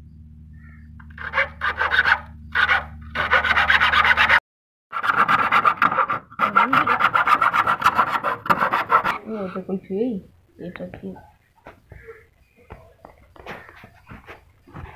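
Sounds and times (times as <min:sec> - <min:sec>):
hacksaw blade sawing wood: 0:01.1 - 0:09.2.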